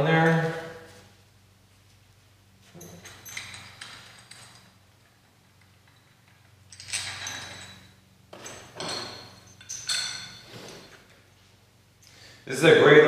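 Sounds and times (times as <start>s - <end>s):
metal bolts and washers clinking: 2.6s - 11.3s.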